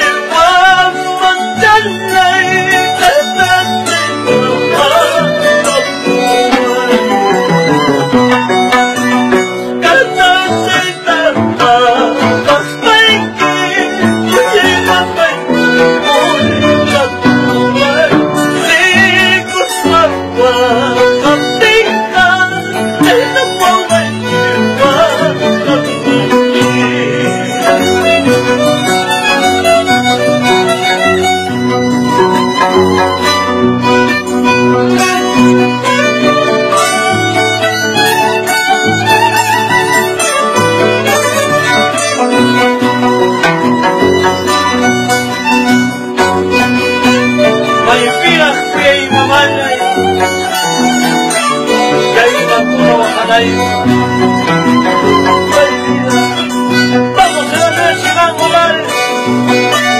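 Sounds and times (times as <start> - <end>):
guitars strummed and plucked: 0.0 - 59.9
harp: 0.0 - 59.9
violin melody: 0.0 - 59.9.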